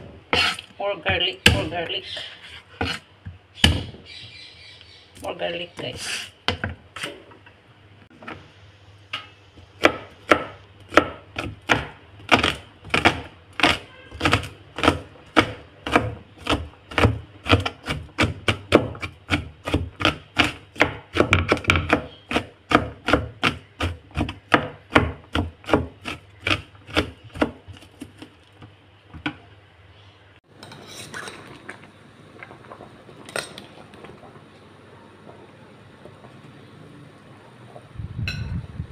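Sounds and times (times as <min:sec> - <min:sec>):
knife chopping on plastic board: 0:09.8 - 0:28.3.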